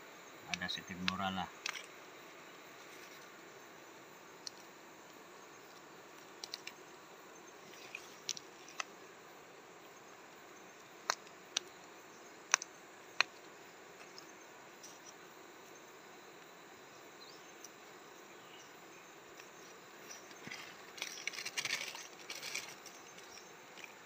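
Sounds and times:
faint steady hiss: 0.0 - 24.0
sharp clicks and snaps: 6.4 - 6.8, 12.5 - 13.4.

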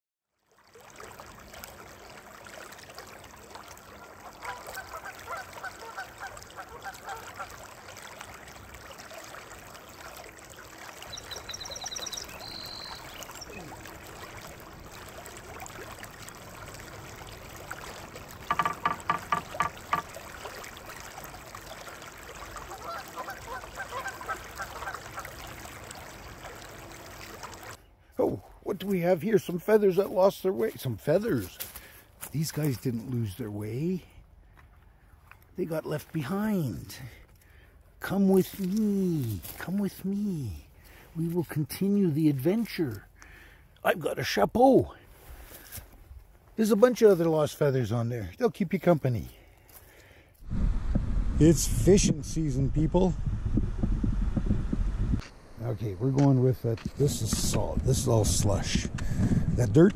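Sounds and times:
high chirping: 11.0 - 13.7.

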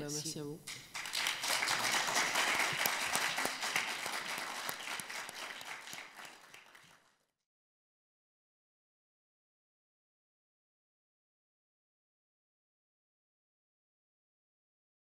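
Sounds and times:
audience applauding: 0.7 - 7.2.

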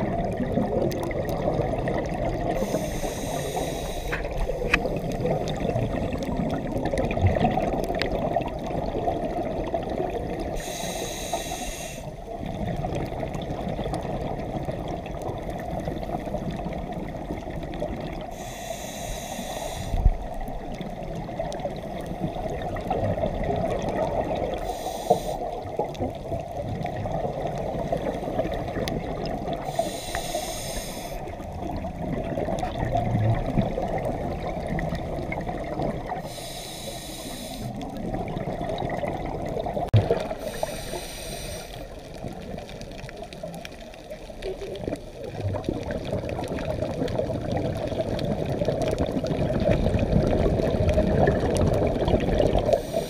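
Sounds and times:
muffled water rumble: 0.0 - 53.0
regulator breathing hisses: 2.6 - 4.8, 10.5 - 12.2, 18.3 - 20.2, 24.6 - 25.6, 29.6 - 31.4, 36.1 - 37.8, 40.3 - 42.1, 52.7 - 53.0.

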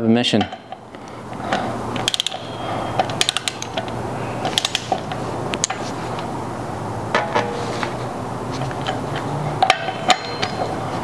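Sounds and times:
ratchet wrench clicking: 2.0 - 2.5, 3.1 - 3.8, 4.5 - 5.0.

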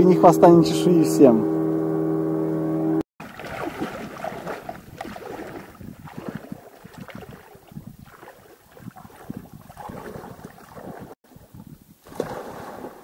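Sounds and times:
water sloshing around legs: 3.2 - 11.2
wind buffeting microphone: 3.3 - 13.0.

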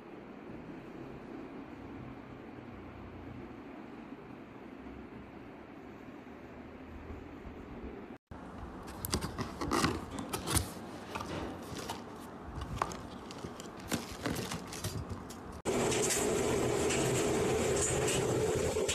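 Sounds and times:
cardboard packaging rustling: 8.8 - 15.6
air fryer whirring: 15.2 - 18.9.

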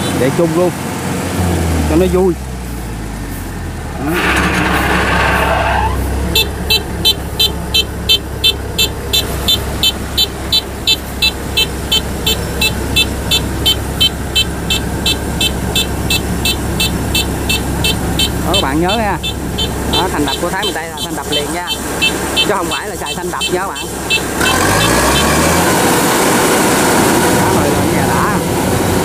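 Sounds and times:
harvester engine running: 0.0 - 29.0
short rushing noise: 3.9 - 7.5
electronic warning beeps: 6.3 - 25.4.

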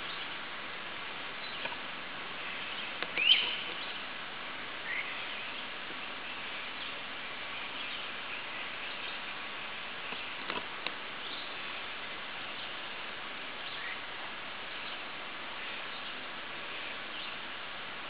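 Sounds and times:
woodland background hiss: 0.0 - 18.0
bird chirp rising in pitch: 3.2 - 3.6.

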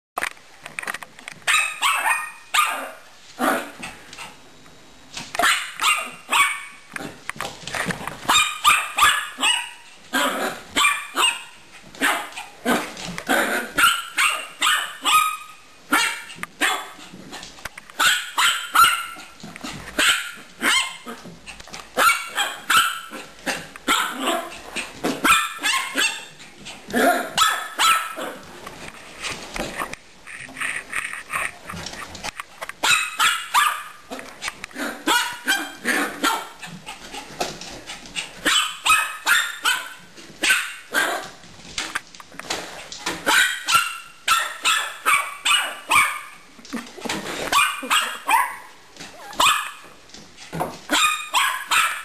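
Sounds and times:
dog barking: 1.5 - 3.0, 5.4 - 6.8, 8.3 - 12.3, 13.8 - 17.0, 18.0 - 19.3, 22.0 - 24.5, 25.2 - 26.3, 27.4 - 28.4, 32.8 - 33.9, 35.0 - 36.6, 38.4 - 41.2, 43.2 - 46.4, 47.6 - 48.7, 49.4 - 49.8, 50.9 - 52.0.

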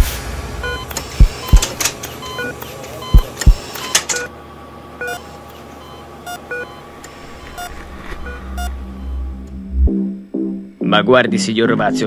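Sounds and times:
faint steady hum: 0.2 - 10.8
short electronic beeps: 0.6 - 4.0, 5.8 - 9.4
low rumble: 7.2 - 10.8.

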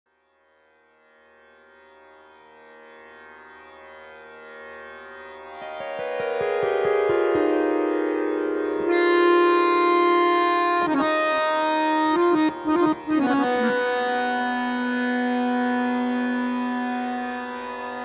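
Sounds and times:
harmonium playing: 4.7 - 18.0.

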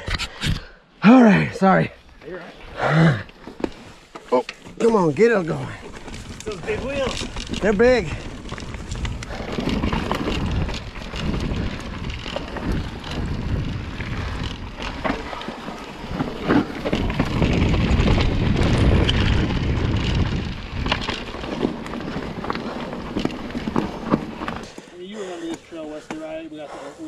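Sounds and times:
tyre and wind noise: 1.7 - 25.0
bike wheels knocking on rocks: 3.5 - 24.9.

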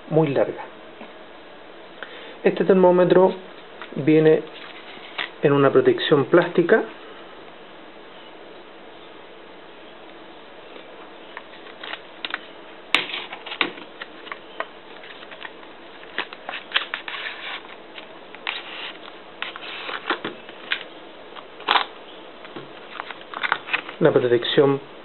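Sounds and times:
plastic blister pack being opened: 13.0 - 21.9, 22.5 - 24.0.

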